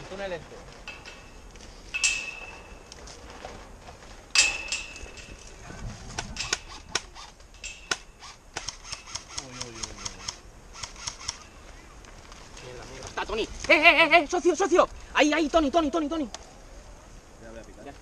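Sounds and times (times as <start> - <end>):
airsoft guns firing: 7.8 - 11.4.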